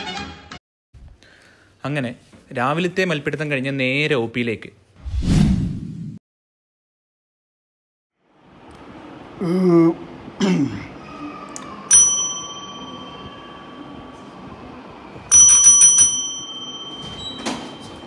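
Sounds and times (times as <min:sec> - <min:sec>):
desk service bell ringing: 0:11.9 - 0:14.5, 0:15.2 - 0:18.0.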